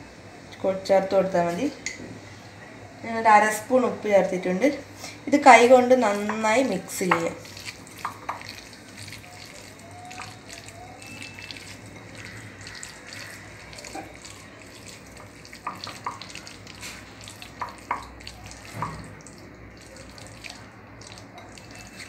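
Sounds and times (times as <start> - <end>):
wet squishy rustling: 5.1 - 22.0
clicks and taps on glass bowl: 15.2 - 16.4, 17.6 - 18.1.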